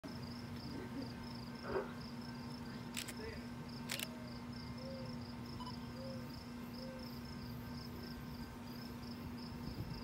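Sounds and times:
insect chirping: 0.1s - 10.0s
sharp clicks: 3.9s - 4.1s.

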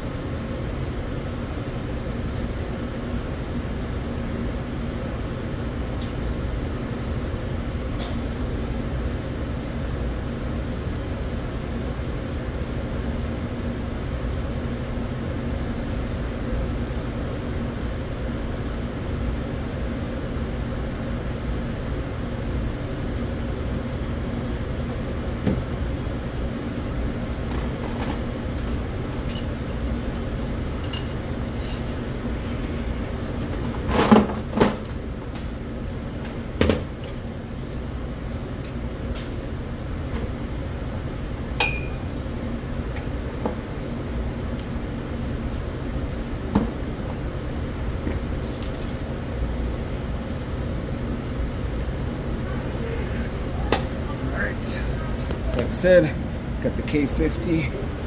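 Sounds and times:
steady mechanical hum: 0.0s - 58.0s
sharp metallic clanks: 41.6s - 42.0s.

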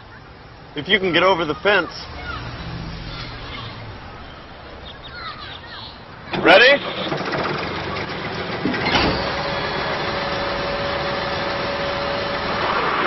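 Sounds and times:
diesel engine running: 6.2s - 13.0s.

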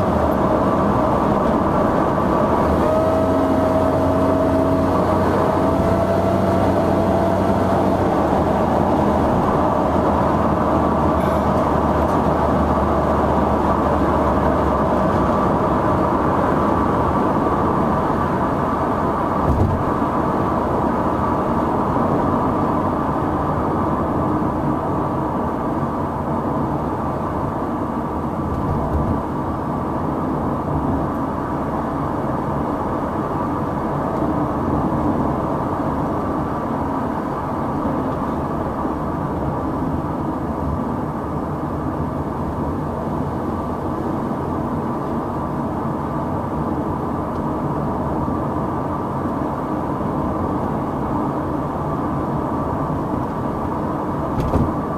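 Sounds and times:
car engine and road noise: 0.0s - 54.9s
brief thump: 19.4s - 19.9s, 54.4s - 54.8s.

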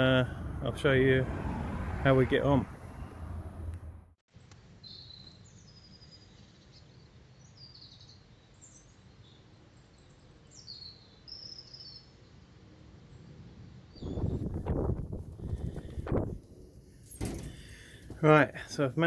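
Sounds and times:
small birds chirping: 4.4s - 12.4s, 13.0s - 19.0s.

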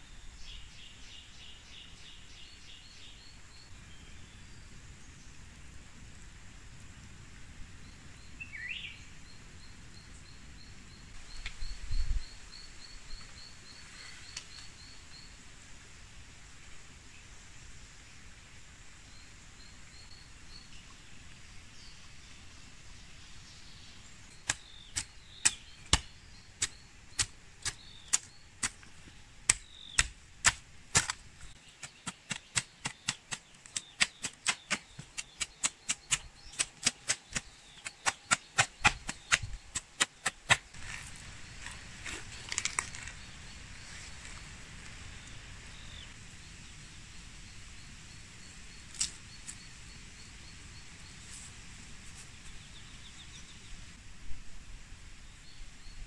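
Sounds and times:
hand tool chopping strikes: 24.4s - 28.8s, 29.5s - 31.2s, 31.8s - 41.0s.

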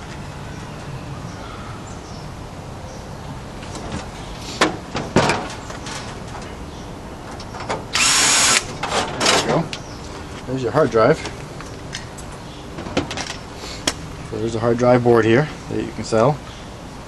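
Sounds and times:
cordless drill running: 8.0s - 8.6s.

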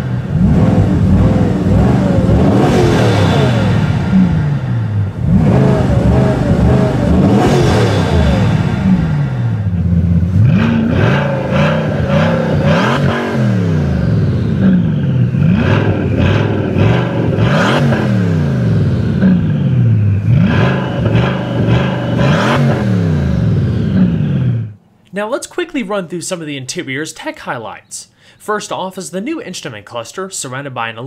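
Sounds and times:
car engine revving: 0.0s - 24.8s.

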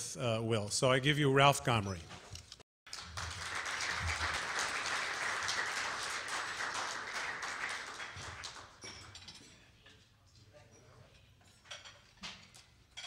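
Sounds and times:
audience applauding: 2.9s - 8.8s.

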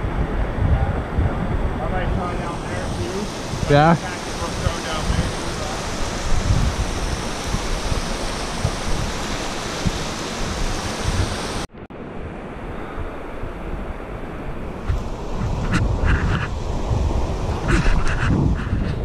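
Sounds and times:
moving water: 0.0s - 19.0s
wind buffeting microphone: 0.0s - 19.0s.

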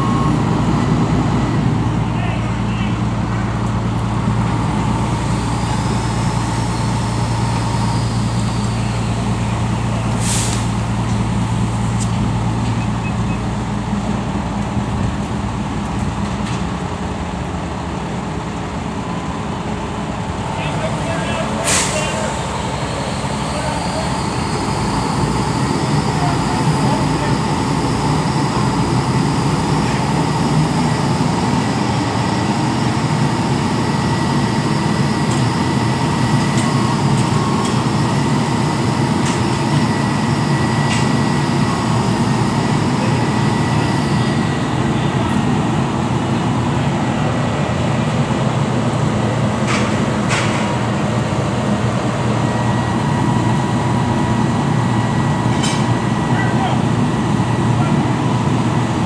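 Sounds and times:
diesel engines running: 0.0s - 59.0s.

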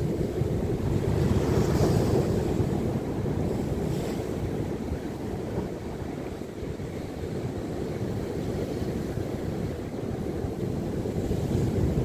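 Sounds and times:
surf breaking over rocks: 0.0s - 6.2s
wind buffeting microphone: 0.0s - 12.0s.

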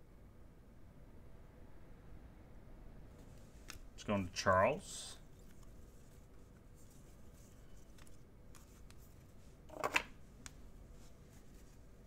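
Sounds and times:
cards clicking and rustling: 5.3s - 10.6s.

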